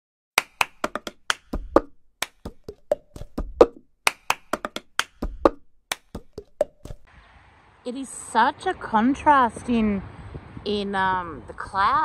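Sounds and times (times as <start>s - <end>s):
percussive jingle claps and clicks: 0.4s - 7.1s.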